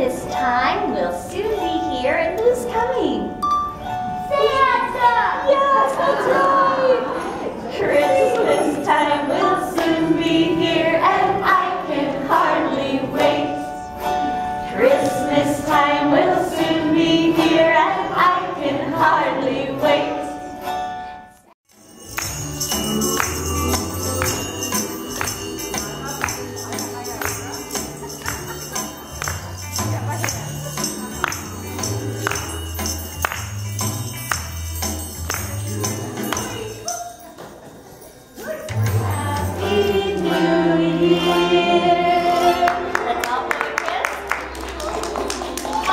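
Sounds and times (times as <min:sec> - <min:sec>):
women and children singing: 0:05.3 - 0:13.8, 0:14.7 - 0:20.5, 0:38.7 - 0:43.3
tambourines and jingle bells: 0:21.7 - 0:41.1.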